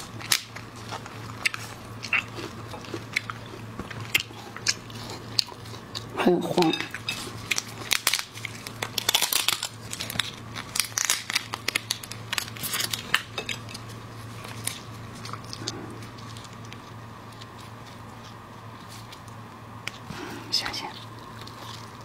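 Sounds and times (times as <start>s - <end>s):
plastic gloves crinkling: 6.6s - 20.1s, 20.8s - 22.0s
crab shell snapping and tearing: 7.4s - 16.8s.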